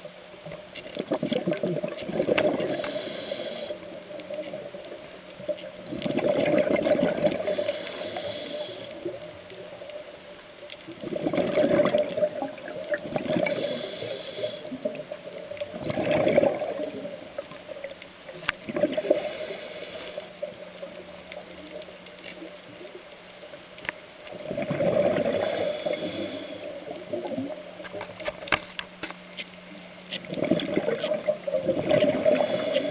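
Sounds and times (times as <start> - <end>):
gurgling exhaled bubbles: 1.0 - 4.8, 5.8 - 9.2, 11.0 - 18.0, 18.6 - 20.4, 24.3 - 28.0, 30.2 - 32.9
regulator hissing inhalation: 2.6 - 3.8, 7.3 - 9.0, 13.4 - 14.8, 18.9 - 20.4, 25.3 - 26.8, 32.2 - 32.9.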